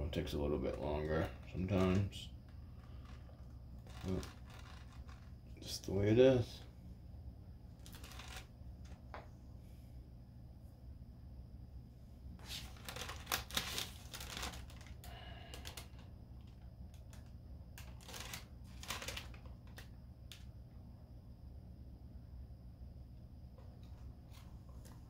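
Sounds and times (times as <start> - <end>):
steady low hum: 0.0 - 25.0
parchment paper crinkling: 0.6 - 5.3, 7.8 - 8.5, 12.4 - 20.4.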